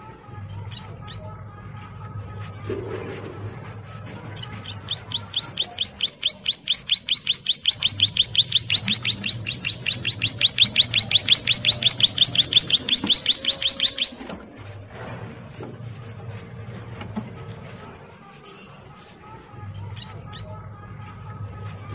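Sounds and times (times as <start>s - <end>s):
bird fast trill: 4.5s - 14.3s.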